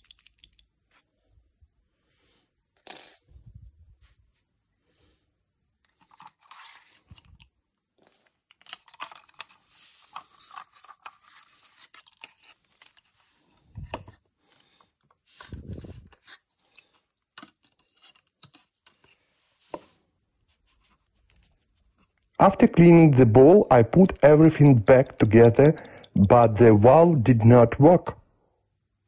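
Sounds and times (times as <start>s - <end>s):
plastic parts crinkling and clicking: 0.0s - 1.1s, 5.8s - 19.8s, 20.8s - 22.6s, 23.5s - 26.4s.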